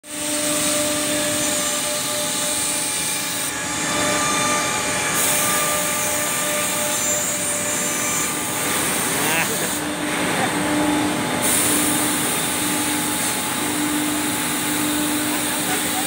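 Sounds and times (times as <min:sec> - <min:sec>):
workshop noise: 0:00.0 - 0:16.0
machine motors whining: 0:00.1 - 0:16.0
wood cutting hiss: 0:00.1 - 0:16.0.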